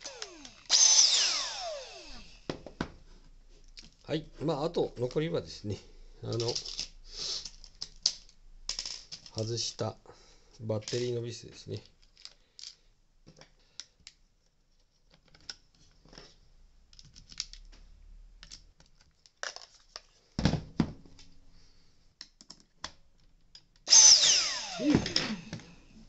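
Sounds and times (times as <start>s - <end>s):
vacuum cleaner motor whine: 0.0s - 2.5s, 23.9s - 25.9s
screwdriver and plastic parts clicking: 11.8s - 14.2s, 14.8s - 17.8s, 18.4s - 20.1s.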